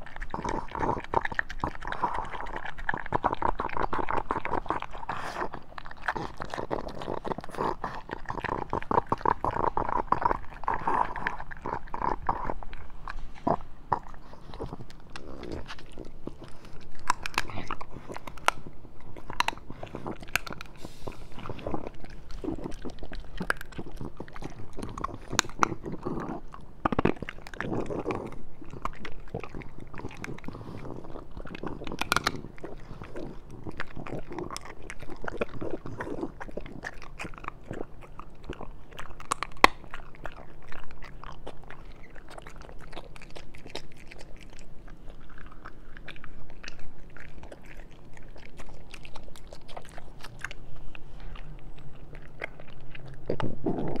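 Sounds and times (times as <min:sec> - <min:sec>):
dog chewing and crunching bone: 0:00.0 - 0:54.0.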